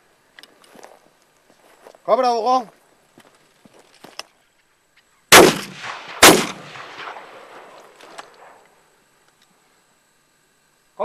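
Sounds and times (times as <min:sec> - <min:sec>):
shotgun shots with echo: 0:05.3 - 0:08.6.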